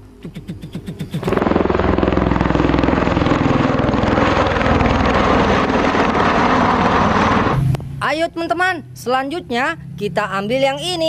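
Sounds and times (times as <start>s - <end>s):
aircraft rotors beating chop: 0.0s - 8.0s.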